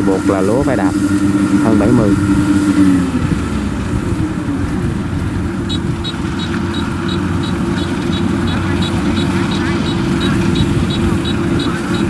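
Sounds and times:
diesel engine running: 0:00.0 - 0:12.0
faint high ticking: 0:05.6 - 0:12.0.

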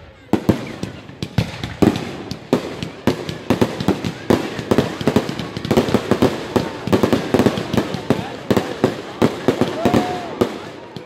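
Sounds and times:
fireworks bangs and cracks: 0:00.1 - 0:11.0.

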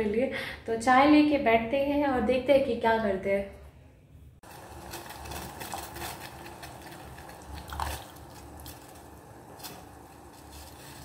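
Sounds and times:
milk heating hiss: 0:04.5 - 0:11.0.

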